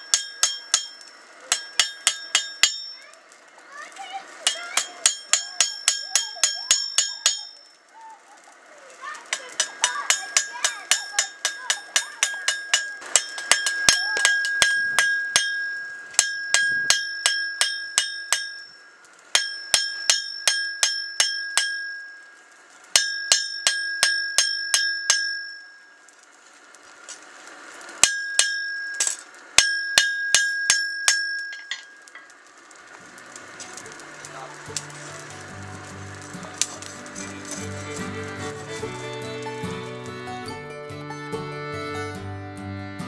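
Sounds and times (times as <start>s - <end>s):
hammer striking blade on anvil: 0.0s - 3.1s, 4.4s - 7.7s, 9.3s - 22.2s, 22.9s - 25.7s, 28.0s - 32.1s.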